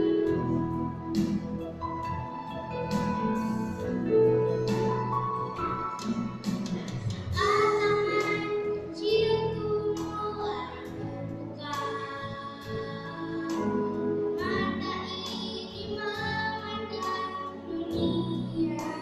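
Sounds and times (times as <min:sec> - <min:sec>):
instrumental accompaniment: 0:00.0 - 0:19.0
girl singing into a microphone: 0:06.8 - 0:19.0.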